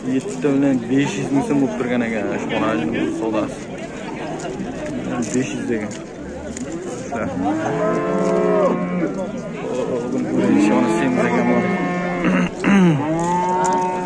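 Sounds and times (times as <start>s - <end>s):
cattle mooing: 7.4s - 9.2s, 10.2s - 14.0s.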